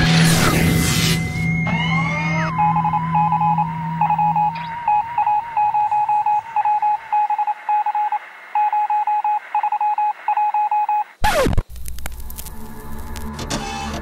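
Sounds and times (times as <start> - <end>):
short electronic beeps: 2.6 - 11.1.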